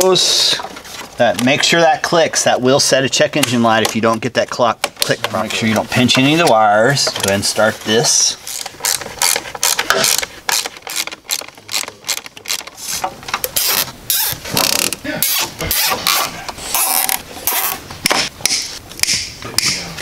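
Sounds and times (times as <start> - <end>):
zip tie being pulled tight: 13.6 - 17.8.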